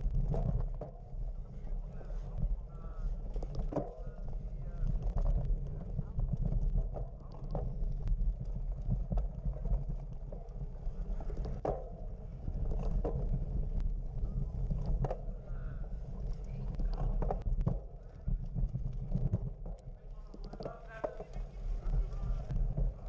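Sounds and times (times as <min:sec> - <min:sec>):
wind rumbling on microphone: 0:00.0 - 0:23.0
faint distant voices: 0:01.2 - 0:08.0, 0:14.1 - 0:18.5.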